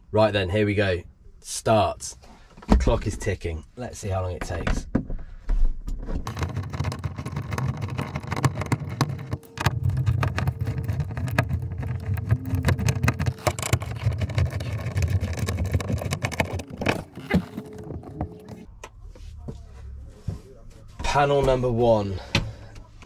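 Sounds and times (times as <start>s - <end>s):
rustling and rubbing: 6.0s - 21.0s.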